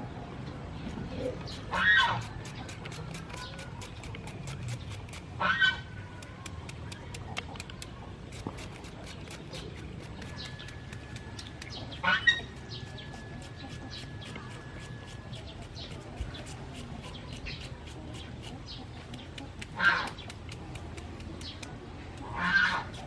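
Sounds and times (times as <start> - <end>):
blade shredding cucumber: 1.4 - 23.0
farmyard fowl calling: 5.4 - 5.9, 11.8 - 14.8, 19.8 - 20.2, 22.2 - 23.0.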